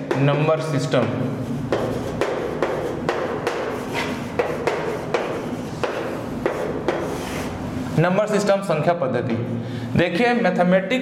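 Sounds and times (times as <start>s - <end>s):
chalk tapping on a chalkboard: 0.0s - 0.5s, 1.6s - 7.6s.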